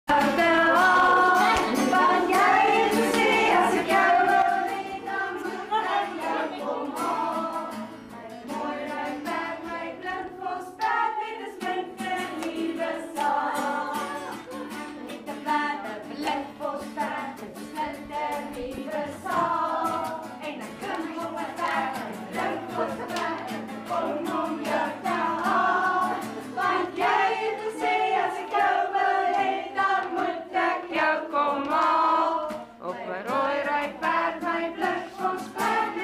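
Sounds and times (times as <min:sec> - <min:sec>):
strummed acoustic guitar: 0:00.1 - 0:10.7, 0:11.5 - 0:29.8
two women singing: 0:00.1 - 0:36.0.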